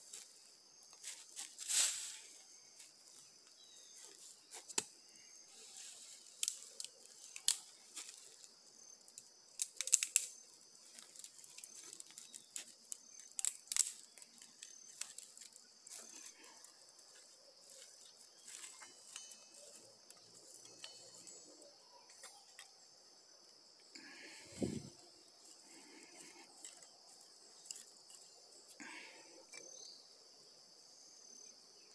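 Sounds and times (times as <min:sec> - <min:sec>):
high-pitched insect chorus: 0:00.0 - 0:31.9
dry leaves crunching underfoot: 0:01.0 - 0:03.2, 0:10.8 - 0:20.0
dry twigs crackling: 0:05.5 - 0:22.8, 0:24.0 - 0:29.1.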